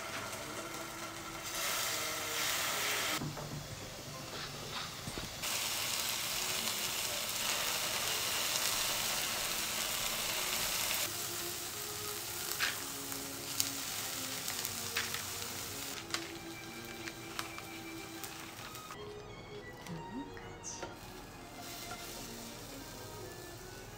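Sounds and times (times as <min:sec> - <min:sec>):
tofu sizzling in a frying pan: 0:00.0 - 0:03.2, 0:05.0 - 0:19.0, 0:21.0 - 0:23.9
pepper mill grinding: 0:07.6 - 0:18.9.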